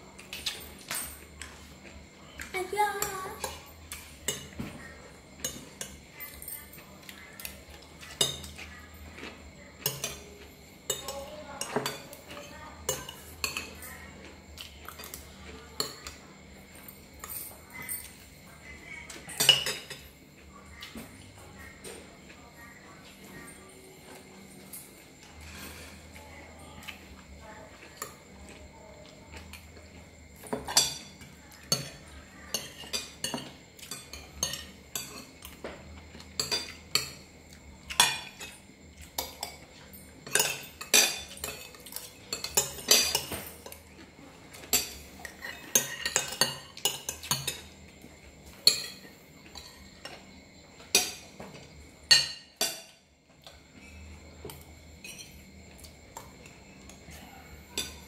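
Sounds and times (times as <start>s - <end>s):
spoons clinking on plates: 2.4s - 4.8s, 5.4s - 10.3s, 10.9s - 14.0s, 19.1s - 20.1s, 26.8s - 58.0s.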